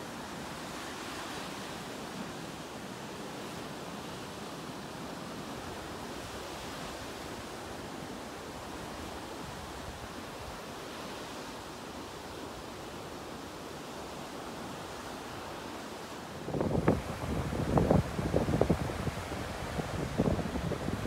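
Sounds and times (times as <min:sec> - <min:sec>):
surf breaking on beach: 0:14.9 - 0:21.0.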